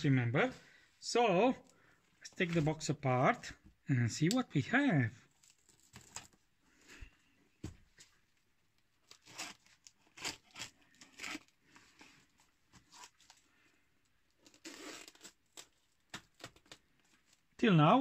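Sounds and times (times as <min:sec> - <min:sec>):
knife slitting plastic wrap: 0:09.1 - 0:11.5, 0:14.4 - 0:15.7.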